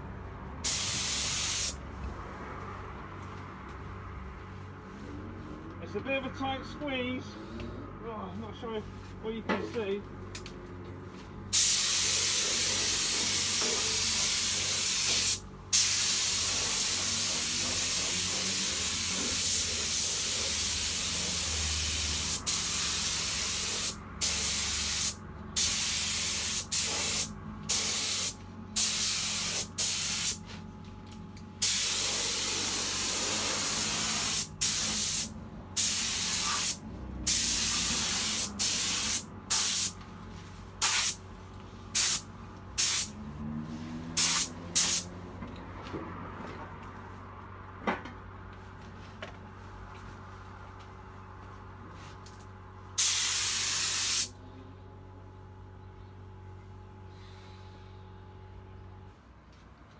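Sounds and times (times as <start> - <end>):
paint spray gun hissing: 0.6 - 1.8, 11.6 - 30.4, 31.6 - 40.0, 40.8 - 41.2, 42.0 - 42.2, 42.8 - 43.1, 44.2 - 45.0, 53.0 - 54.3.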